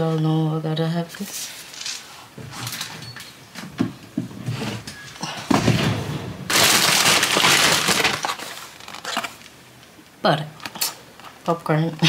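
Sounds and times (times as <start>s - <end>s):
plastic bag rustling: 5.5s - 9.6s.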